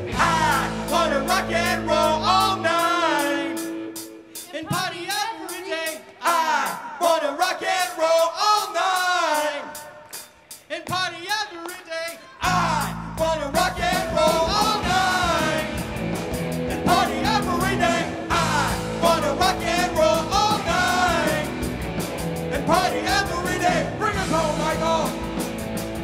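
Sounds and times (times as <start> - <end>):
electric bass: 0.0 - 3.1, 12.4 - 26.0
electric guitars: 0.0 - 4.5, 13.7 - 26.0
lead vocal singing: 0.0 - 25.4
drum kit: 0.0 - 26.0.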